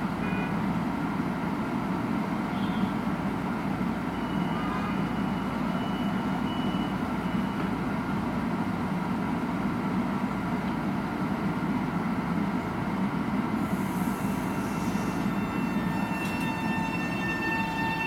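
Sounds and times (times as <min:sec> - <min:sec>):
electric train humming: 0:11.2 - 0:18.0.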